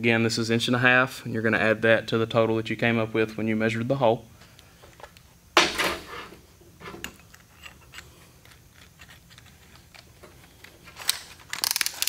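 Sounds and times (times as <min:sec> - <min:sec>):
metal tools clicking: 0:11.0 - 0:12.0.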